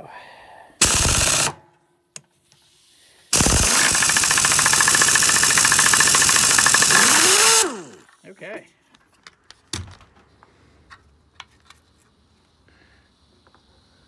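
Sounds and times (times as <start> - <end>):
air impact wrench hammering: 0.8 - 1.6, 3.3 - 8.0.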